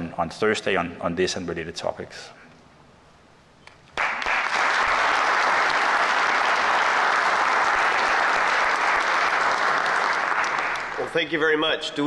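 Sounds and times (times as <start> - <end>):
audience applauding: 3.9 - 11.2.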